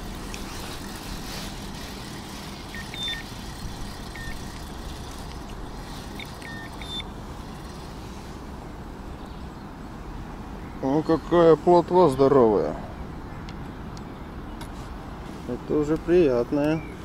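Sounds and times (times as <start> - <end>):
faint high chirps: 2.7 - 3.3, 6.1 - 7.8.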